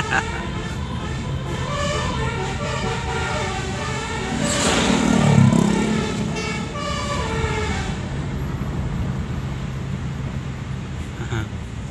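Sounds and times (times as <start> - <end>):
multi-tone bus air horn: 0.0 - 8.2
low engine drone: 0.0 - 11.4.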